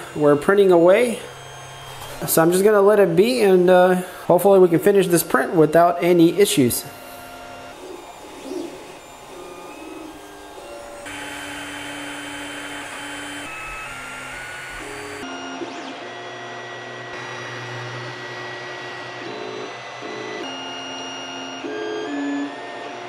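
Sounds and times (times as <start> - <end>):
cooling fans hissing: 0.0 - 15.2
stepper motor tones: 0.0 - 23.0.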